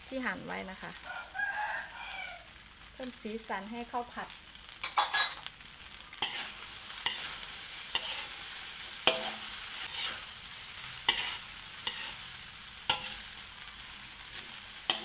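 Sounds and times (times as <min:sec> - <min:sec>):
rice sizzling in oil: 0:00.0 - 0:15.0
metal ladle scraping a wok: 0:06.2 - 0:10.4, 0:11.0 - 0:13.4, 0:14.3 - 0:15.0.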